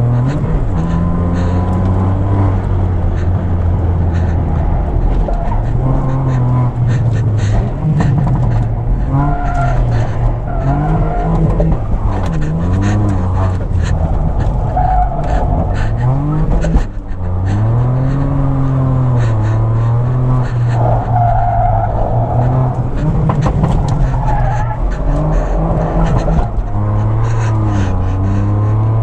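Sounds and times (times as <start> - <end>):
car engine revving: 0.0 - 29.0
tyres squealing: 4.0 - 28.8.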